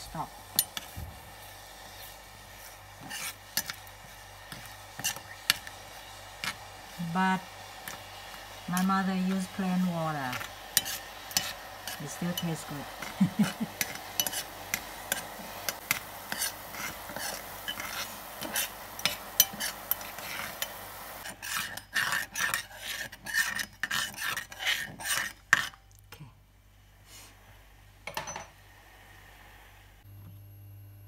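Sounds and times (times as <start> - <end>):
metal spoon scraping enamel pot: 3.0 - 3.9, 4.5 - 5.8, 10.3 - 13.2, 13.8 - 25.8.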